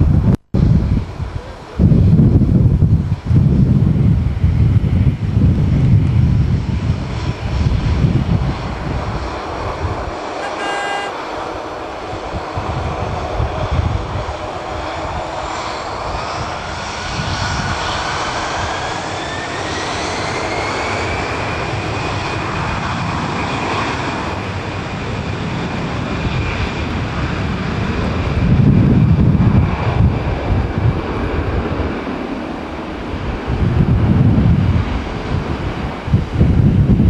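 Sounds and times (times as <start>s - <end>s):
jet engine rumble: 0.0s - 37.0s
jet fan whine: 0.0s - 37.0s.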